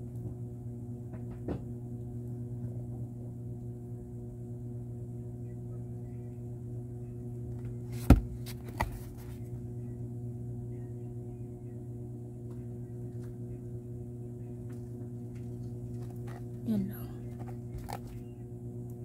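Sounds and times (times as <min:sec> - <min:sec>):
low electrical hum: 0:00.0 - 0:19.0
cardboard box knocks: 0:08.0 - 0:09.0.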